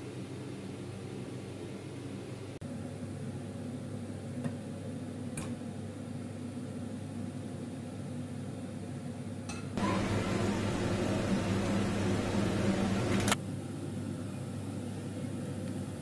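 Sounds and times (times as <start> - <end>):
kitchen hum: 9.5 - 16.0.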